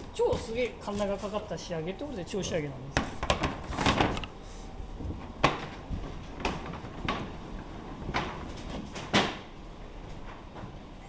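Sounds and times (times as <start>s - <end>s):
knocks of objects being handled: 3.0s - 4.4s, 5.0s - 9.5s.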